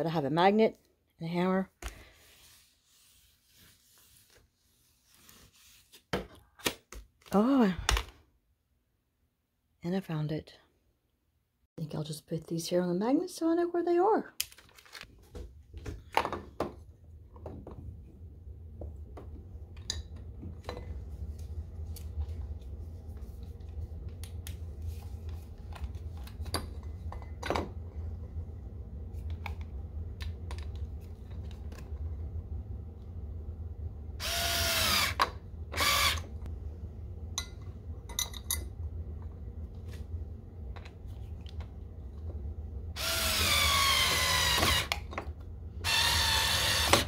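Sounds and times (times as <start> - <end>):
steady low hum: 16.8 - 46.9
cordless screwdriver whirring: 34.2 - 35.2, 35.8 - 36.3, 43.0 - 45.0, 45.8 - 47.0.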